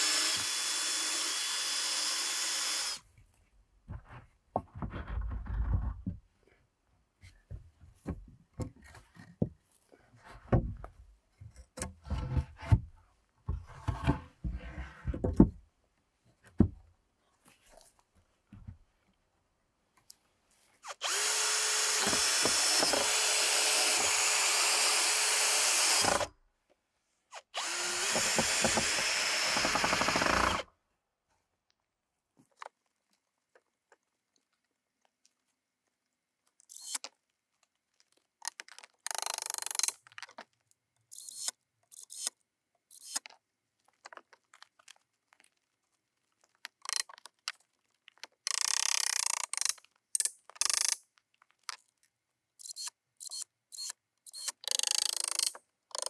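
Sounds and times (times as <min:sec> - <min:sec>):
cordless drill driving screws: 0:00.0 - 0:03.0, 0:20.8 - 0:26.3, 0:27.3 - 0:30.7, 0:52.6 - 0:56.0.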